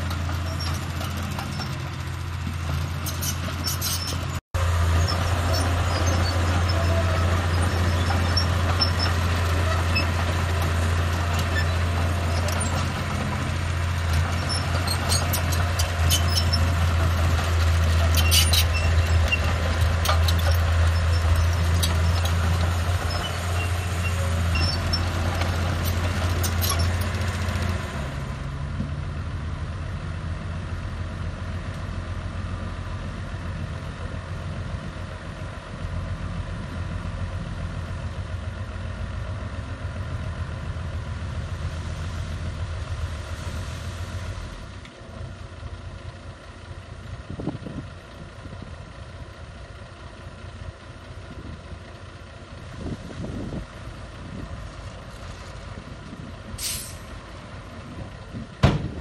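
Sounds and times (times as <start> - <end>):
dump truck raising tipper bed: 0.0 - 29.0, 50.1 - 59.0
bulldozer diesel engine idling: 0.0 - 59.0.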